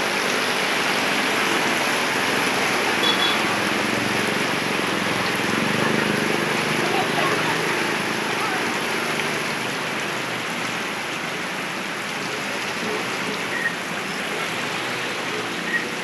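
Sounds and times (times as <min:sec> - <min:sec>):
heavy rain on standing water: 0:00.0 - 0:16.0.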